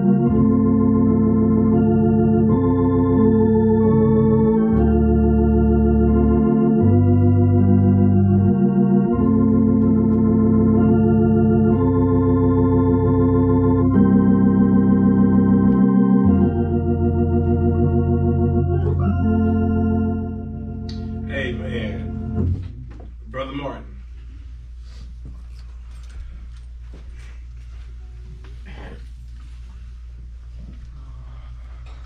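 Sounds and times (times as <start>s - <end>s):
electronic organ chords: 0.0s - 24.5s.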